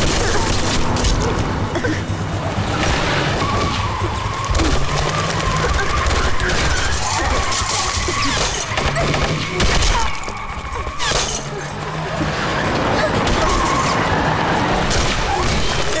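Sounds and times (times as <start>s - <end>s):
background music: 0.0s - 16.0s
objects smashing and shattering: 0.0s - 16.0s
gunfire: 2.8s - 10.3s.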